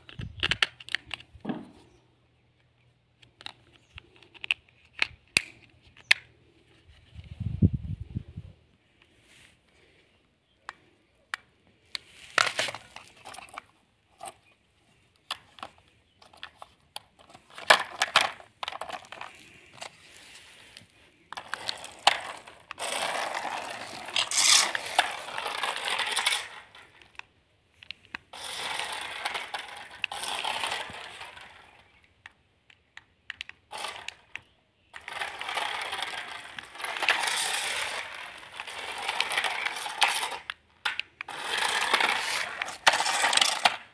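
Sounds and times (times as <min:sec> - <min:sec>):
plastic toy car clattering: 0:00.0 - 0:02.0, 0:02.6 - 0:07.2, 0:10.6 - 0:43.9
small gear motor whirring: 0:21.8 - 0:26.6, 0:28.4 - 0:31.5, 0:41.3 - 0:43.8.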